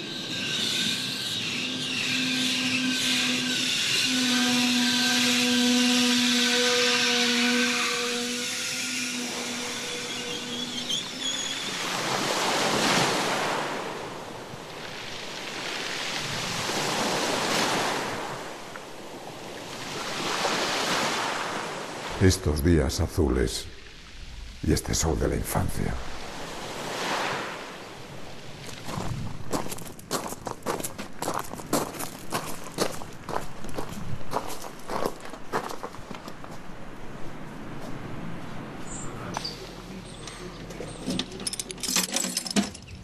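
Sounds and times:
train whine: 0.0s - 11.9s
surf breaking on beach: 11.1s - 22.3s, 26.0s - 29.0s.

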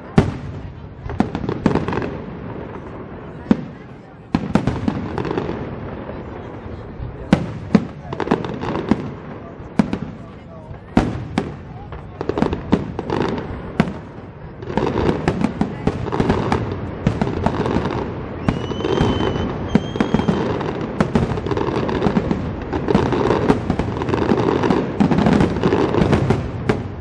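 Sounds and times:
fireworks crackling and banging: 0.0s - 27.0s
short high whistles: 18.4s - 20.4s.

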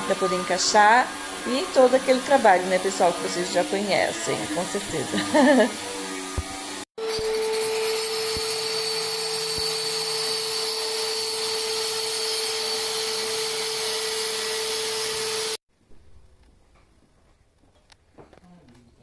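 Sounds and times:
vacuum hissing: 0.0s - 6.6s
power cutter whining: 0.0s - 15.6s.

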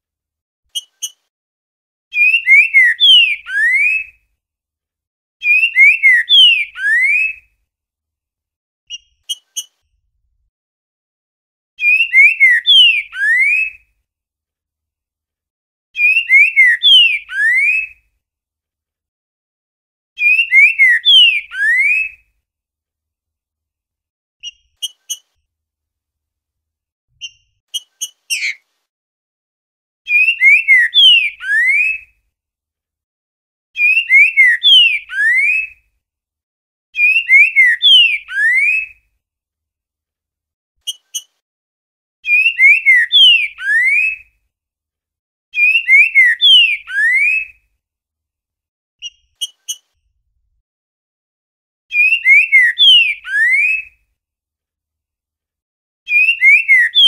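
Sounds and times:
short high bird chips: 27.2s - 28.6s
bird whistling slurred phrases: 45.6s - 47.4s, 51.9s - 53.9s, 56.1s - 57.0s.

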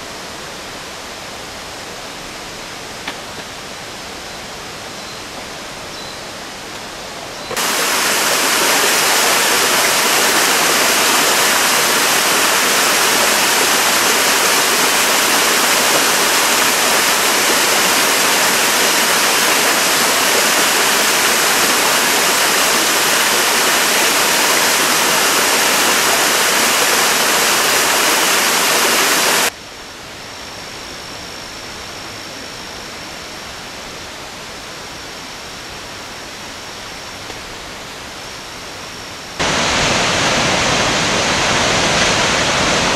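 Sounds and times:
waterfall rushing: 7.5s - 29.5s, 39.4s - 42.9s.

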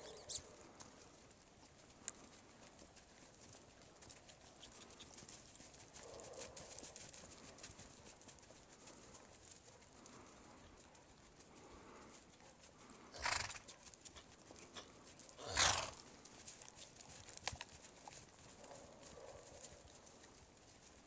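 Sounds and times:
horse cantering through snow: 0.0s - 21.0s
faint clicks: 2.0s - 2.4s
horse snorting: 13.0s - 13.7s, 15.4s - 16.1s.

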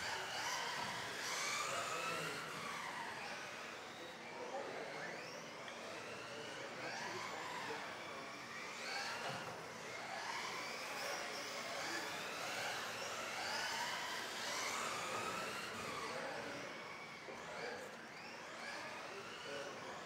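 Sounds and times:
rc car electric motors whining: 0.0s - 20.0s.

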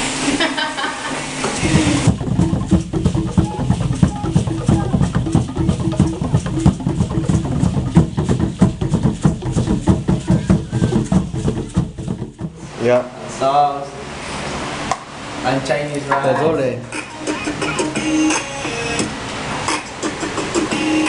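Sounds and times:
fast drumming music: 1.6s - 12.6s, 16.9s - 19.1s, 19.7s - 21.0s.

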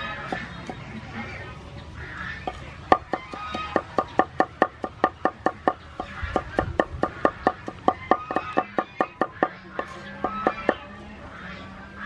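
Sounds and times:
cleaver chopping on wooden board: 2.5s - 10.8s.

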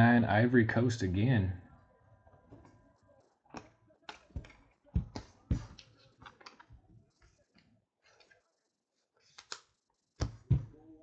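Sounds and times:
cards rustling: 4.0s - 7.4s, 9.2s - 9.8s.

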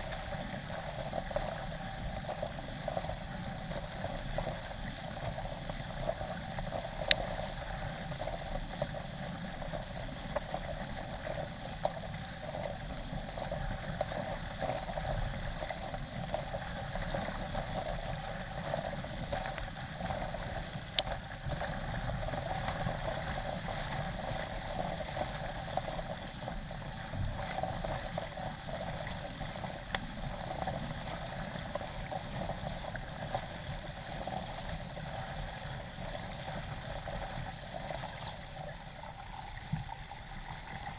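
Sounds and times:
water rushing along kayak hull: 0.0s - 40.9s.

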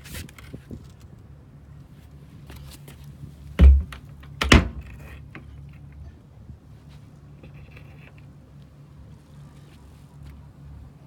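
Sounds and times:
heavy lid thunks: 3.6s - 5.1s.

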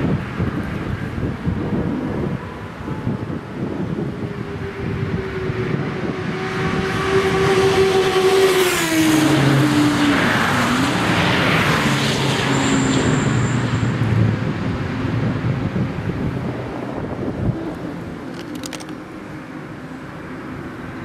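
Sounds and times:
race cars passing at speed: 0.0s - 21.0s
motorcycle passing at speed: 5.1s - 12.3s.

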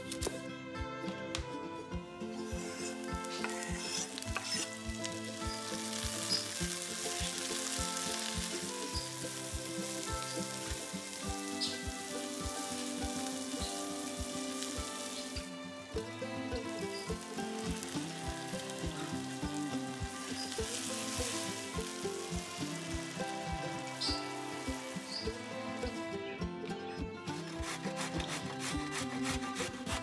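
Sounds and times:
background music with beat: 0.0s - 30.0s
food sizzling in hot oil: 2.4s - 25.6s.

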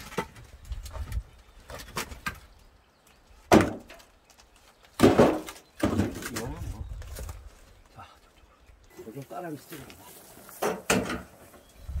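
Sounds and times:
logs clunking into wheelbarrow: 0.0s - 2.5s, 3.4s - 7.4s, 9.1s - 11.7s.

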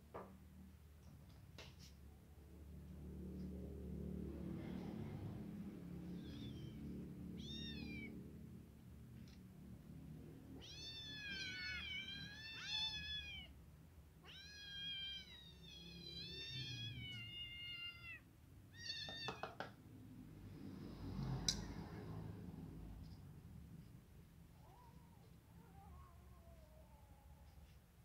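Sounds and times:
kittens meowing: 6.0s - 8.3s, 10.6s - 13.6s, 14.2s - 19.5s.

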